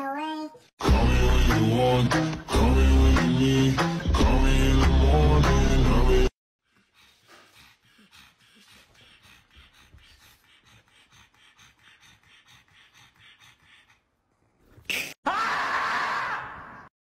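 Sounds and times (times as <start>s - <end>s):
dog panting: 6.6s - 14.4s.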